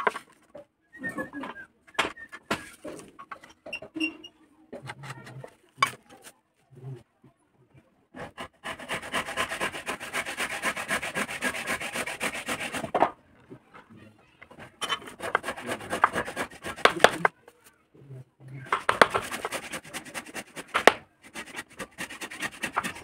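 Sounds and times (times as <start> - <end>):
carving tool scraping wood: 8.2 - 13.1, 14.5 - 17.3, 18.6 - 23.0.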